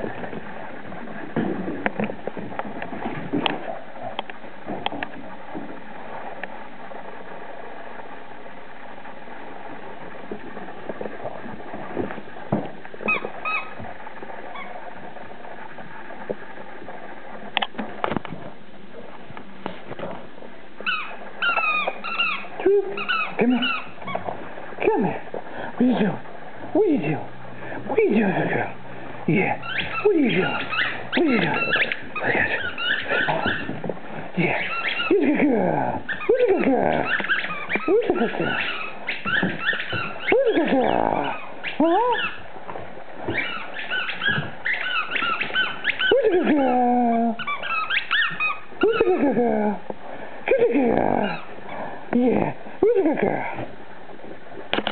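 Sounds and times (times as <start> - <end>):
dog whining: 13.0 - 13.8, 14.5 - 14.8, 20.8 - 24.4, 29.6 - 33.8, 34.4 - 42.5, 43.2 - 49.8, 50.6 - 51.6.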